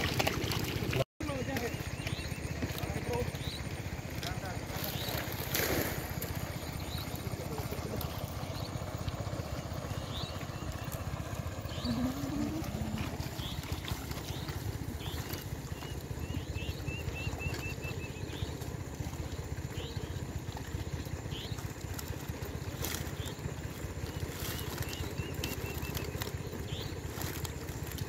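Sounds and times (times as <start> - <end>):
bird chirping: 1.3 - 3.8, 11.6 - 18.7
steady low rumble: 1.9 - 28.0
bird rising calls: 4.6 - 18.8.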